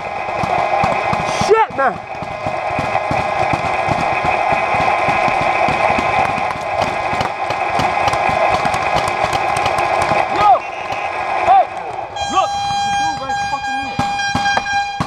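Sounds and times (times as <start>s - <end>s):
paintball markers firing: 0.0s - 12.0s
loud mechanical whir: 0.0s - 15.0s.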